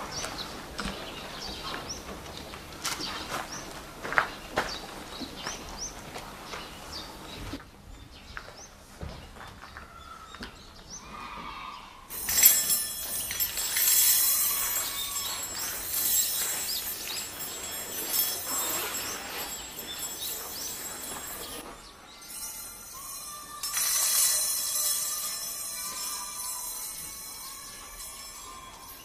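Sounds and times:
birds chirping: 0:00.0 - 0:29.0
metal chopsticks clinking: 0:12.1 - 0:21.6, 0:22.6 - 0:29.0.

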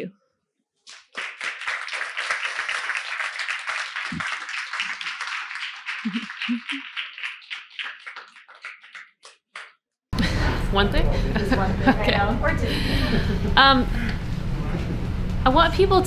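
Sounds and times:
audience applauding: 0:00.9 - 0:09.7.

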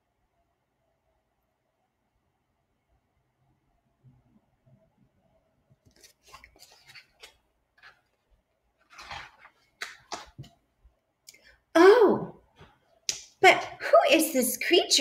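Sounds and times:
book page rustling: 0:05.8 - 0:10.6.

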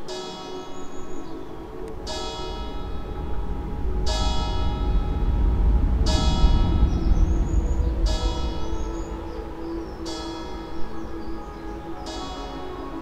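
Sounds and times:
instrumental background music: 0:00.0 - 0:13.0
low rumble: 0:01.6 - 0:12.0.

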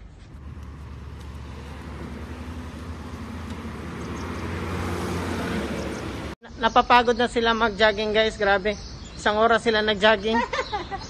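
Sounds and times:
vehicle engine hum: 0:00.0 - 0:06.4.

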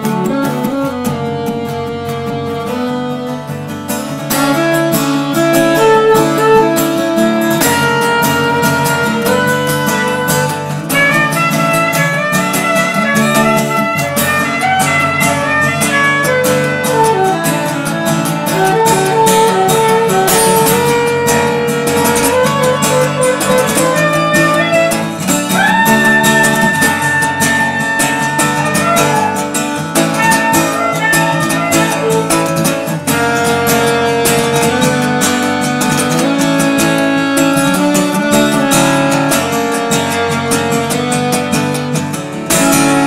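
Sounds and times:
plucked guitar music: 0:00.0 - 0:43.0
steady beat: 0:17.6 - 0:41.2.

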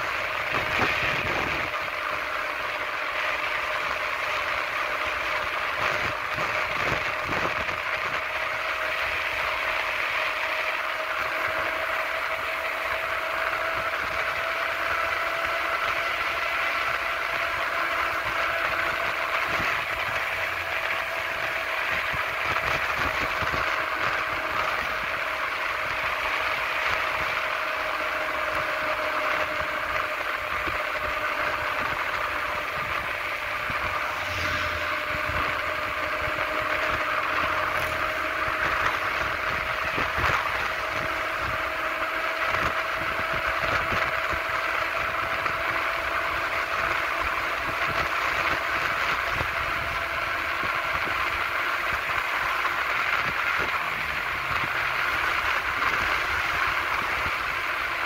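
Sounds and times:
rolling on a paved road: 0:00.0 - 0:58.0
thin constant whine: 0:00.0 - 0:58.0
passing truck rumble: 0:31.4 - 0:40.9.

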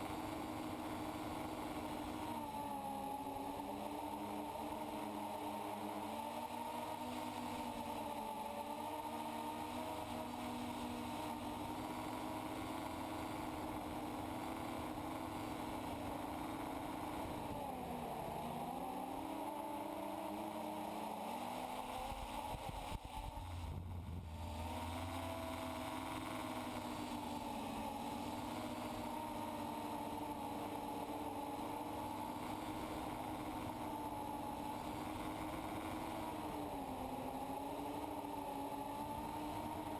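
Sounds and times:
drone motors whining: 0:00.0 - 0:39.9
low rumble: 0:23.4 - 0:24.6.

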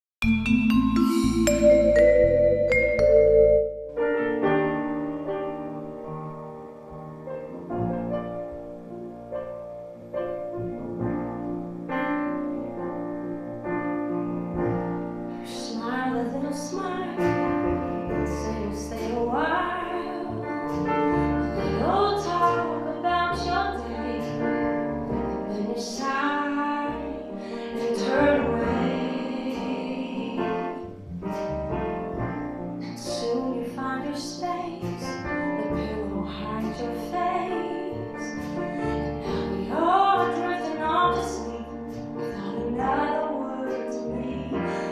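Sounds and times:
upright bass: 0:00.2 - 0:04.0, 0:16.9 - 0:44.8
grand piano: 0:00.2 - 0:44.9
acoustic guitar: 0:09.7 - 0:44.9
woman singing a ballad: 0:15.4 - 0:17.4, 0:18.1 - 0:20.6, 0:21.6 - 0:24.5, 0:25.5 - 0:30.8, 0:32.9 - 0:38.5, 0:39.2 - 0:44.9.

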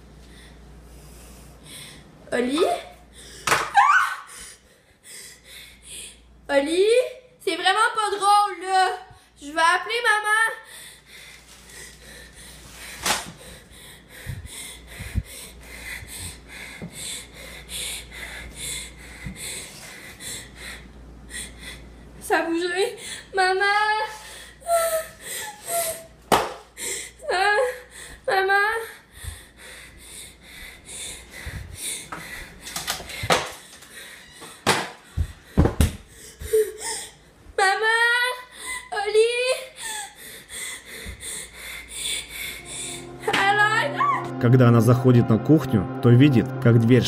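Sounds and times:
person breathing heavily: 0:00.2 - 0:02.2, 0:04.3 - 0:06.3, 0:10.6 - 0:22.1, 0:28.9 - 0:37.2, 0:39.6 - 0:43.3.

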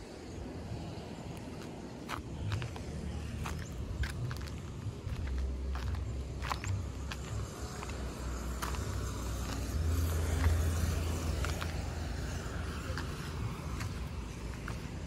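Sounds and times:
footsteps scuffing on stone: 0:01.3 - 0:15.0
low rumble: 0:02.3 - 0:12.4.

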